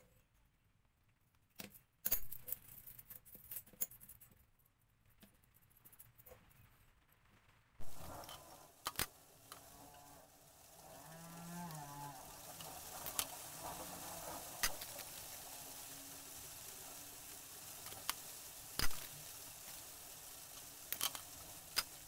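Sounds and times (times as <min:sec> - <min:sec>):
metallic clicks of chainmail rings: 0:02.0 - 0:04.4
steady hiss: 0:07.2 - 0:22.0.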